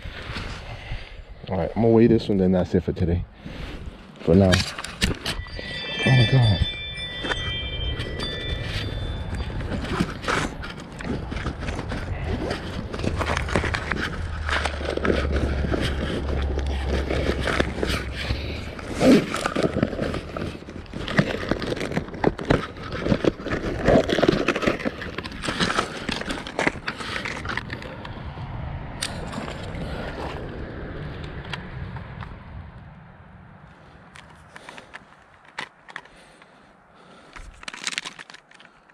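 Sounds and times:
gear handling scrapes and rustles: 0:03.4 - 0:28.2, 0:34.1 - 0:38.9.

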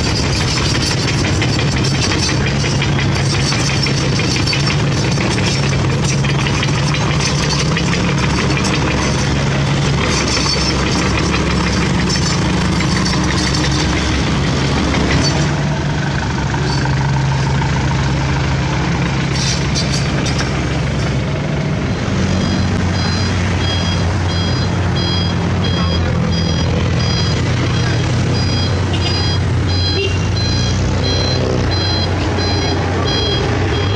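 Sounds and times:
excavator diesel engine idling: 0:00.0 - 0:33.9
road traffic: 0:00.0 - 0:33.9
truck diesel engine running: 0:00.0 - 0:33.9
reversing beeper: 0:22.2 - 0:33.9.

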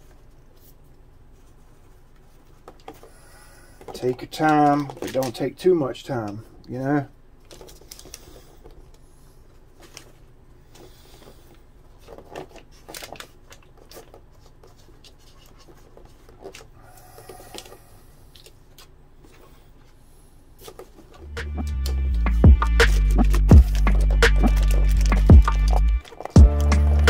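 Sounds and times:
gloved hands rustling cloth: 0:07.4 - 0:27.0.

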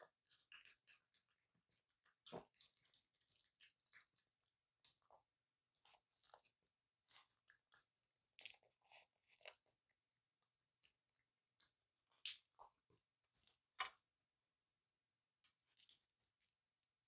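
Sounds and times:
raccoon chewing and smacking: 0:00.1 - 0:09.8.

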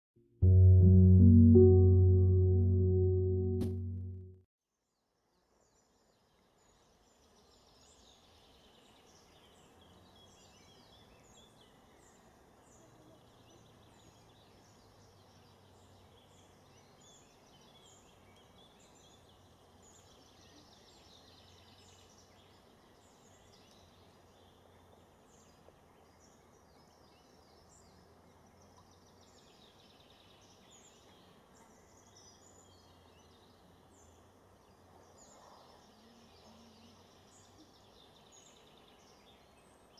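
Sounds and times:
low steady hum: 0:00.4 - 0:04.4.

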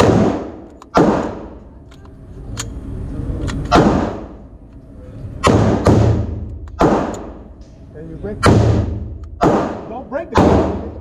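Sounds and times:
echoing pistol shots: 0:00.0 - 0:01.6, 0:03.7 - 0:04.4, 0:05.4 - 0:07.5, 0:08.4 - 0:11.0.

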